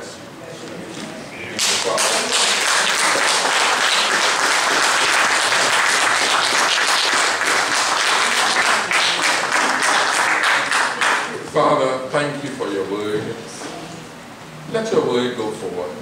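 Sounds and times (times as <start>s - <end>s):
congregation applauding: 1.6s - 11.4s.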